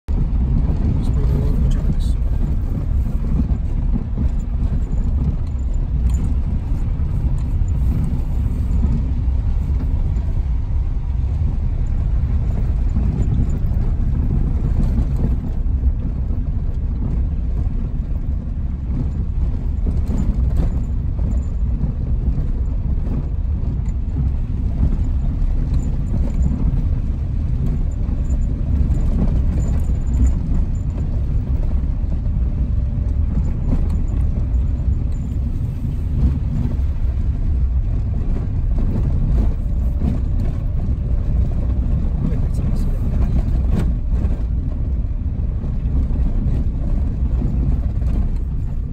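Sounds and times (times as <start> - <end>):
engine and tyres rumbling on gravel: 0.1 - 48.9
small clicks and rattles: 12.6 - 36.8.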